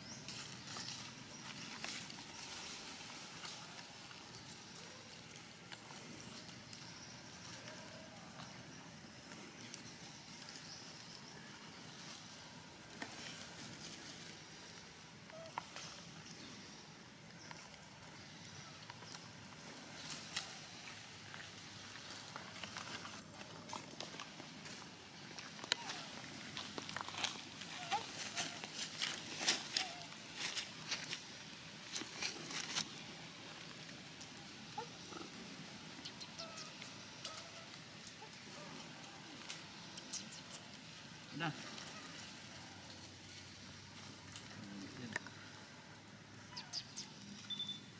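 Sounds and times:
rustling in leaf litter: 0:00.0 - 0:47.6
outdoor background hiss: 0:00.0 - 0:47.9
monkeys calling: 0:36.0 - 0:38.8.

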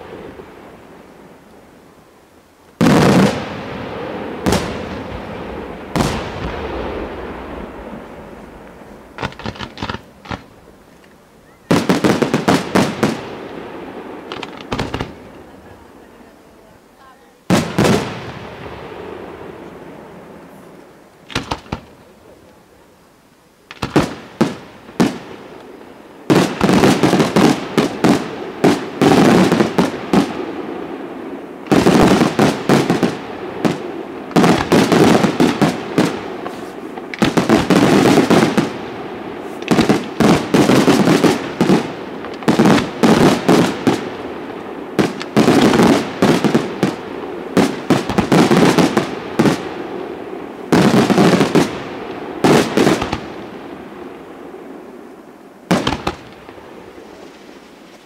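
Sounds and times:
firework shells bursting: 0:05.9 - 0:13.6, 0:14.2 - 0:15.6, 0:21.2 - 0:22.1, 0:23.7 - 0:30.5, 0:31.6 - 0:49.7, 0:55.7 - 0:57.6.

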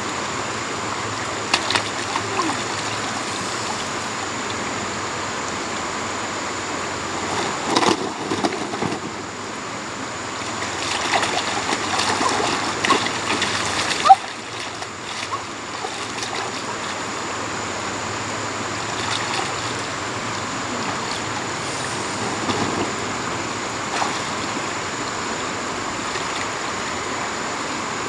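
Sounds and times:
water splashes: 0:00.0 - 0:27.7
running water rushing: 0:00.0 - 0:28.0.

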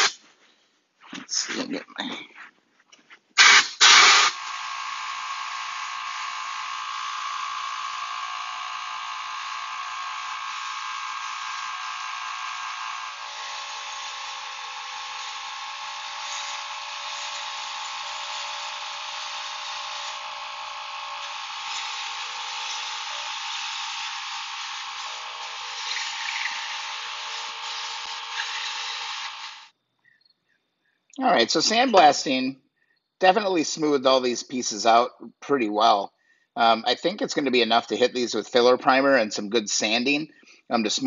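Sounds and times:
sandblast gun hissing: 0:00.0 - 0:00.2, 0:03.4 - 0:04.6, 0:09.3 - 0:29.7
loud sandblast bursts: 0:03.4 - 0:04.4.

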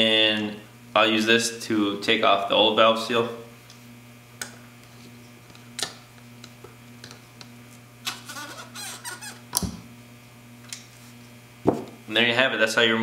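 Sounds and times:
rubber seal squeaking: 0:08.0 - 0:09.6.

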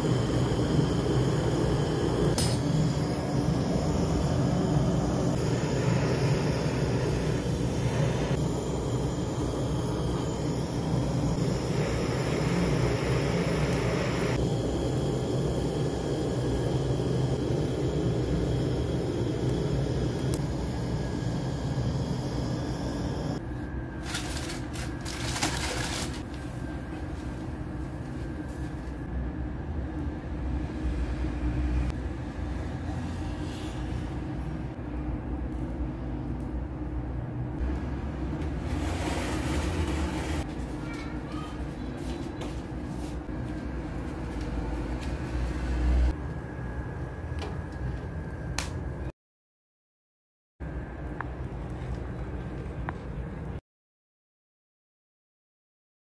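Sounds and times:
gas torch flame hissing: 0:00.0 - 0:23.4
low rumbling noise: 0:00.0 - 0:25.2.

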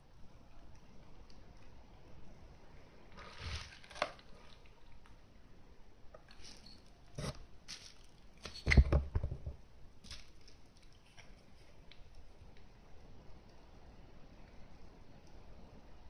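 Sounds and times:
short rustle: 0:03.2 - 0:04.0.

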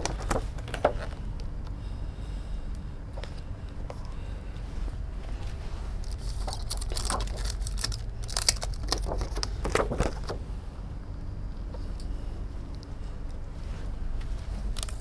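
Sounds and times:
paper cards rustling and tapping: 0:00.0 - 0:01.2, 0:06.1 - 0:10.4
low steady hum: 0:00.0 - 0:15.0.

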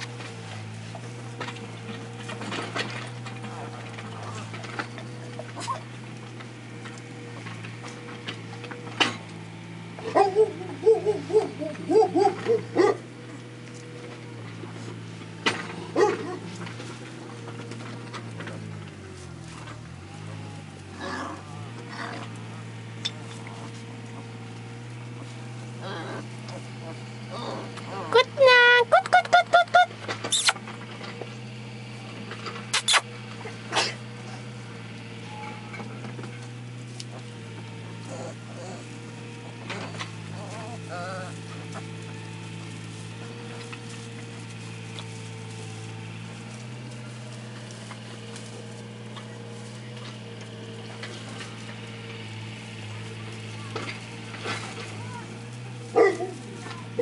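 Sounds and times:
puppies yipping and whimpering: 0:03.1 - 0:06.1, 0:09.9 - 0:14.4, 0:23.3 - 0:30.7, 0:32.8 - 0:33.2, 0:37.2 - 0:42.4
puppy yelp: 0:05.6 - 0:05.9, 0:10.0 - 0:13.1, 0:28.8 - 0:30.6, 0:32.7 - 0:33.0, 0:38.0 - 0:38.9, 0:56.0 - 0:57.0.

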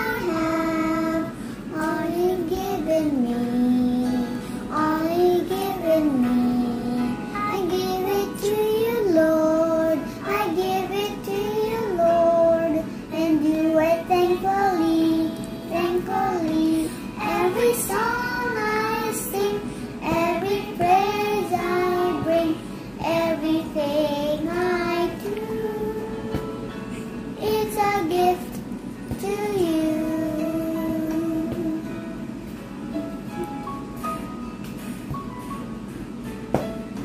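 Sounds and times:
boy singing: 0:00.0 - 0:26.1.

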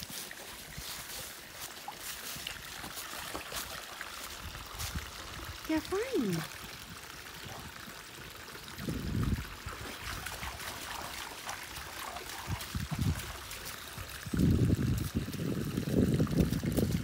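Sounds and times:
stream trickling: 0:00.0 - 0:17.0
dog splashing through water: 0:09.1 - 0:15.5.

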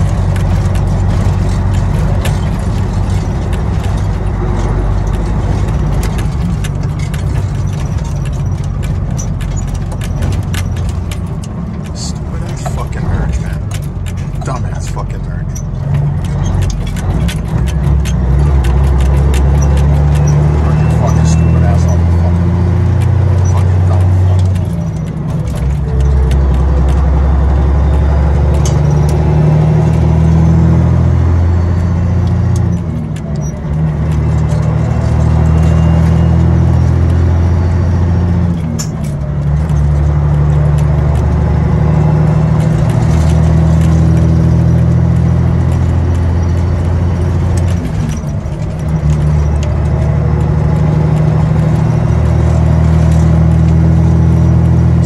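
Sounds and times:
clicking rattles in cab: 0:00.0 - 0:55.0
diesel truck engine running: 0:00.0 - 0:55.0.

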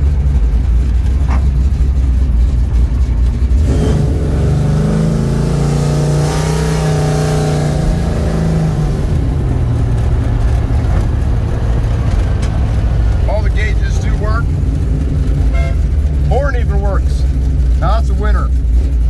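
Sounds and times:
car engine running: 0:00.0 - 0:19.0.

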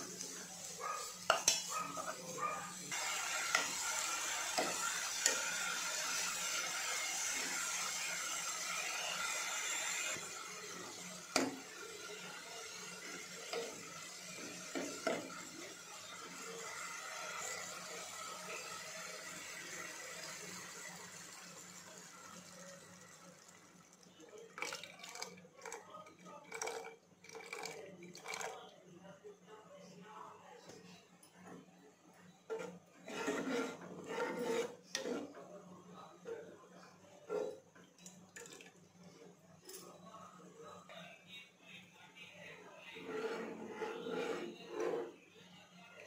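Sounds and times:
frying sizzle: 0:00.0 - 0:23.9
ladle scraping and knocking pan: 0:32.5 - 0:35.4.

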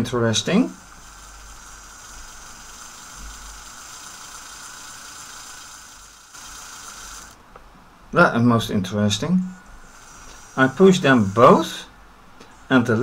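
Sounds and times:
electric motors whirring through gears: 0:00.0 - 0:07.4, 0:09.6 - 0:11.8.

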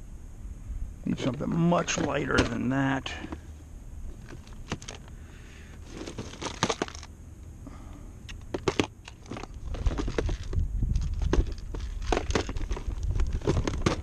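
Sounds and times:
plastic tackle boxes rattling: 0:01.2 - 0:03.4, 0:04.1 - 0:05.1, 0:05.8 - 0:07.1, 0:08.5 - 0:14.0.

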